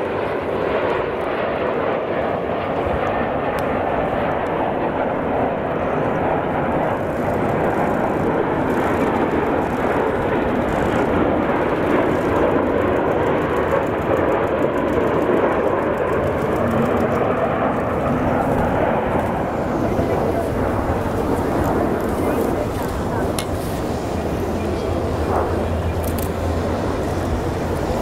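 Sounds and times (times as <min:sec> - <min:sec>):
jet fighters flying past: 0:00.0 - 0:28.0.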